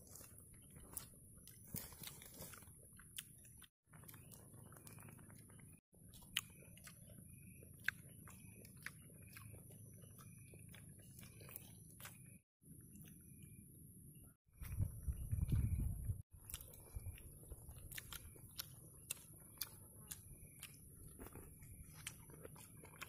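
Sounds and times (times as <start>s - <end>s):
man chewing: 0.0s - 13.6s, 15.5s - 23.0s.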